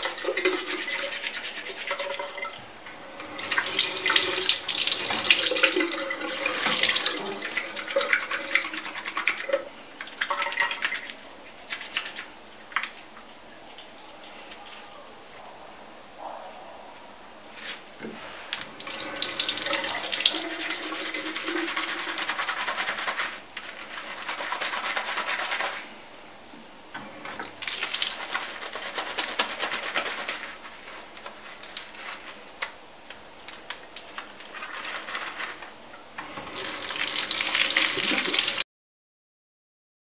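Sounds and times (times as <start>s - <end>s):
tap water running into sink: 0.0s - 11.2s, 18.6s - 23.2s, 27.0s - 30.4s, 36.2s - 38.6s
wet hands rubbing: 0.0s - 13.1s, 17.5s - 26.0s, 27.6s - 32.8s, 33.4s - 35.8s, 36.5s - 38.6s.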